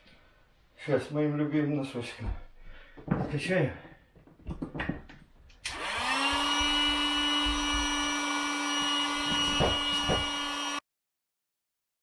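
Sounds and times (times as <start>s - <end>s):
electric air pump humming: 5.6s - 10.8s.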